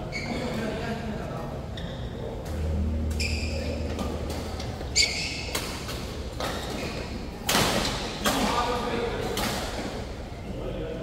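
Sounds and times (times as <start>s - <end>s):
shoes squeaking on court: 0.0s - 0.6s, 3.1s - 7.2s.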